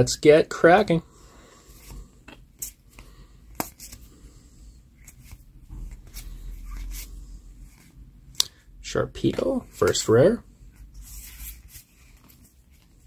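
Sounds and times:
trading cards snapping and rustling: 0:02.3 - 0:04.0.

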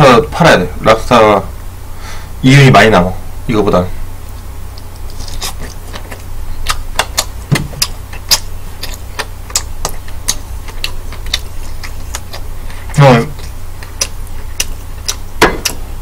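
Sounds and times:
wet chewing and lip smacks: 0:04.3 - 0:15.9.

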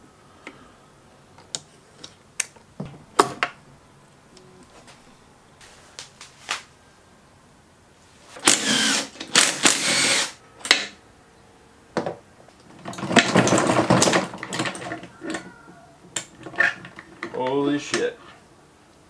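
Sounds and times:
cordless drill turning bolts: 0:08.4 - 0:10.9.

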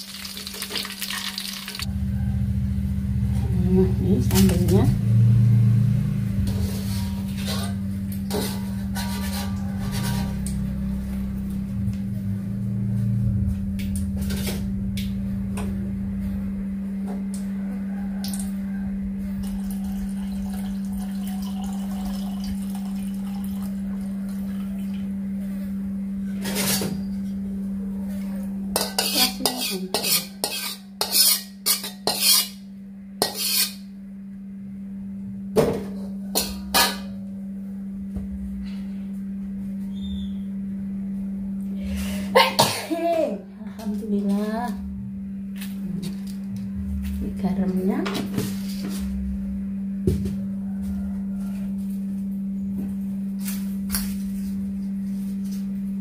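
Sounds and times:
steady low hum: 0:01.8 - 0:56.0
kitchen utensils clinking: 0:28.8 - 0:32.6.

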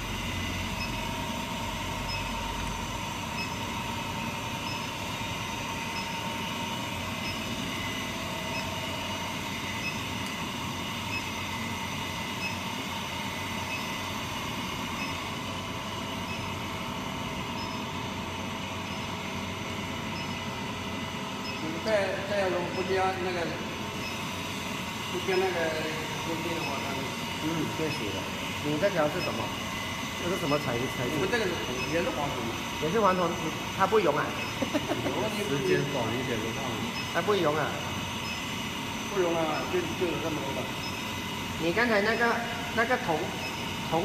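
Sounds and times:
furnace hum and whine: 0:00.0 - 0:44.0
thin steady tones: 0:18.7 - 0:44.0.

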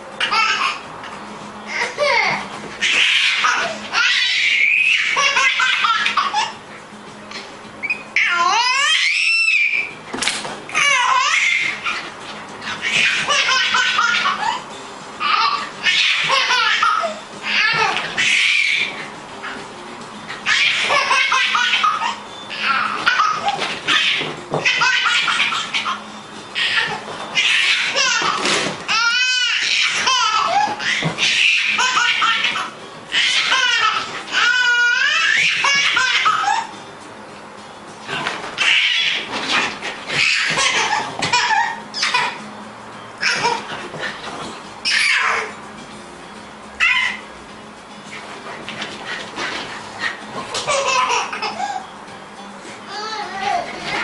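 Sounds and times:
baby laughing: 0:00.2 - 0:00.9, 0:01.7 - 0:06.6, 0:08.2 - 0:09.9, 0:10.7 - 0:19.6, 0:20.4 - 0:36.7, 0:38.2 - 0:42.4, 0:43.2 - 0:44.2, 0:44.8 - 0:45.6, 0:46.8 - 0:47.3, 0:50.2 - 0:51.9
dog yelping and barking: 0:02.8 - 0:06.6, 0:10.8 - 0:14.6, 0:15.5 - 0:19.0, 0:20.4 - 0:26.0, 0:26.6 - 0:36.8, 0:38.2 - 0:42.4, 0:46.8 - 0:47.3.

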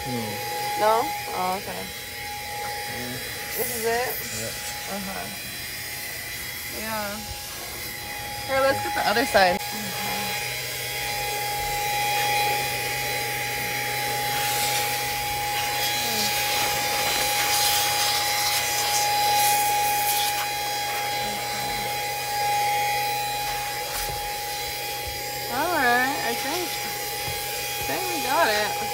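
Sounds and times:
handheld vacuum whining: 0:00.0 - 0:28.9
brush scrubbing dashboard: 0:13.5 - 0:28.9.

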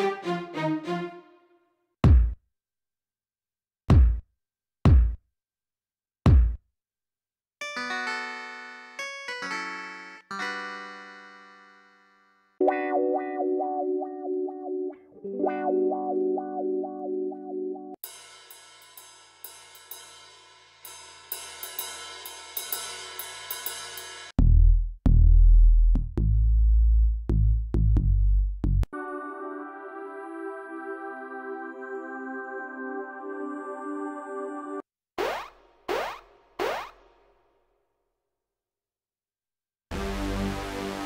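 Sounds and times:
electronic kick drum hits: 0:02.0 - 0:02.4, 0:03.9 - 0:04.2, 0:04.9 - 0:05.2, 0:06.3 - 0:06.6
ride cymbal strikes: 0:18.0 - 0:24.4.

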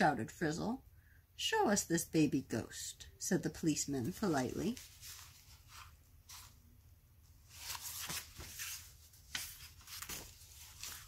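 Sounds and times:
book pages rustling: 0:04.0 - 0:11.0.

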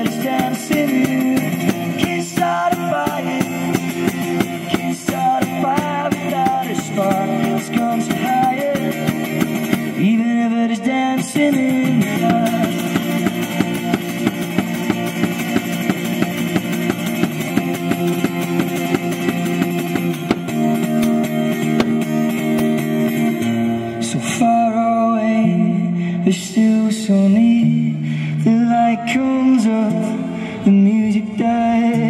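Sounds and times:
foot-operated percussion: 0:00.0 - 0:10.0, 0:11.4 - 0:23.5
person singing: 0:00.0 - 0:15.3
acoustic guitar strumming: 0:00.0 - 0:32.0.

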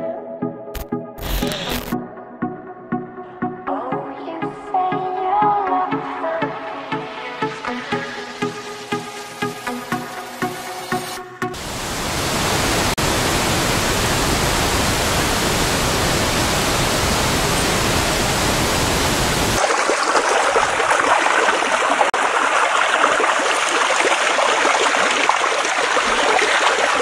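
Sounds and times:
rapids churning: 0:11.6 - 0:27.0
river water rushing over weir: 0:11.6 - 0:27.0.

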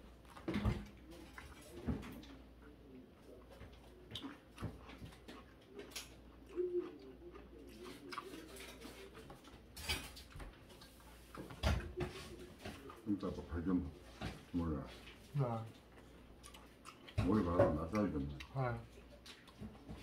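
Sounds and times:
faint low murmur: 0:00.0 - 0:20.0.

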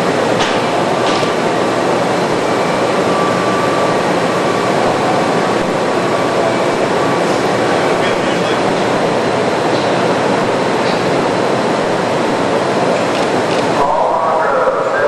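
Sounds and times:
machinery and air handling hum: 0:00.0 - 0:15.0.

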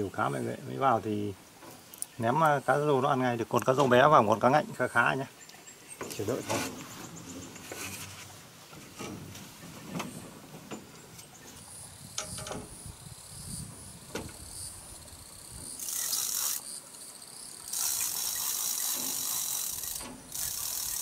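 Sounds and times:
insects buzzing: 0:00.0 - 0:21.0.

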